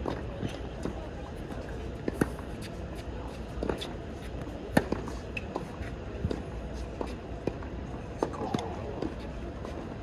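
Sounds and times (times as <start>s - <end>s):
tennis ball bouncing: 0.0s - 9.2s
racket hitting tennis ball: 2.0s - 2.7s.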